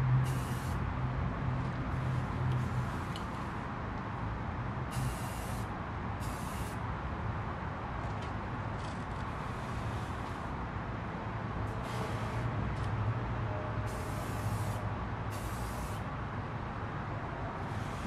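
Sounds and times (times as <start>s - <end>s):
spray paint can hissing: 0.2s - 0.8s, 4.9s - 6.8s, 13.9s - 16.0s, 17.7s - 18.0s.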